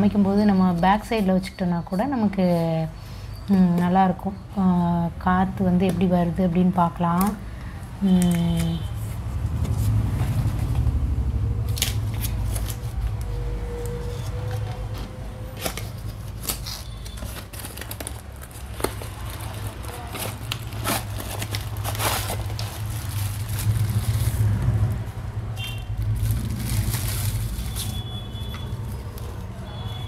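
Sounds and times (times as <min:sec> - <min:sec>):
plastic bag crinkling: 0:15.6 - 0:24.9, 0:25.9 - 0:30.0.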